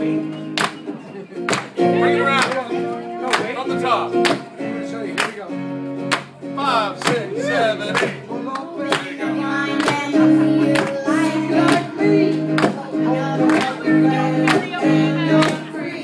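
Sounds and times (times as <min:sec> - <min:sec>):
strummed acoustic guitar: 0:00.0 - 0:16.0
girl and man singing: 0:08.3 - 0:16.0.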